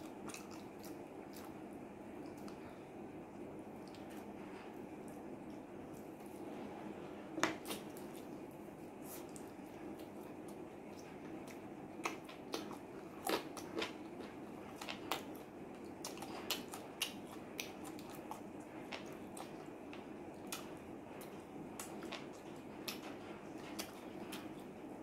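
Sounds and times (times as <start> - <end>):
chewing wet clicks and smacks: 0.0 - 2.6, 3.8 - 4.3, 9.2 - 24.8
faint background hum: 0.0 - 25.0.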